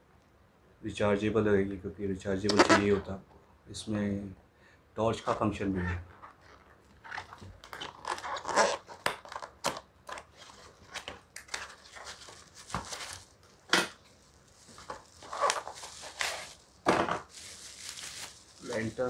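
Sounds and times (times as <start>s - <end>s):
bubble wrap crinkling: 6.2s - 19.0s
cardboard box rustling and scraping: 14.7s - 16.6s.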